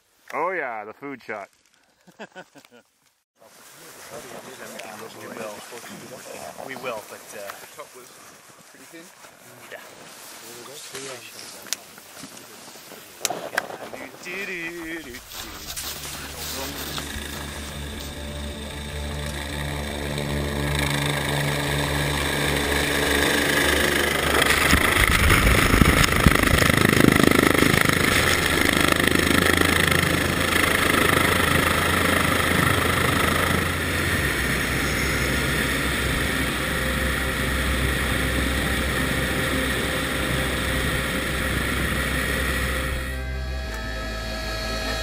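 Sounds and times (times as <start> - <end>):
helicopter rotor and turbine: 13.6 - 45.0
rush of rotor wash: 15.7 - 43.3.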